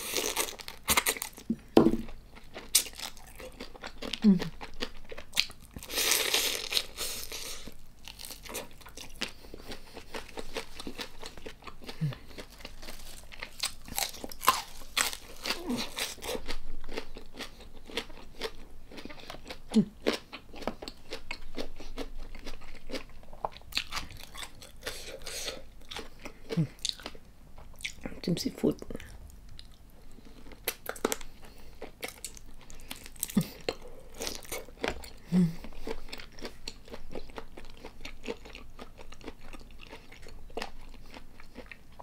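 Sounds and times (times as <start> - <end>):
chewing with sharp clicks: 35.8 - 41.9.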